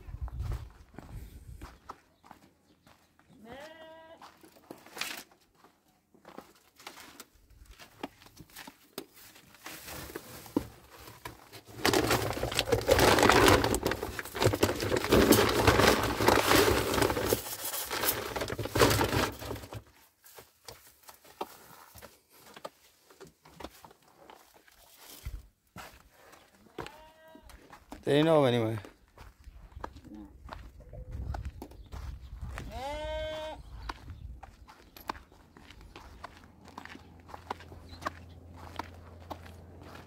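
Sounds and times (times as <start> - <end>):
plastic bag crinkling: 11.3 - 19.8.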